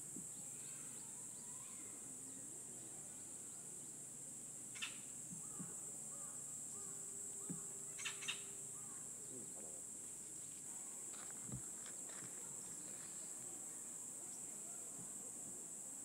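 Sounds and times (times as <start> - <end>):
high-pitched insect drone: 4.6 - 10.0.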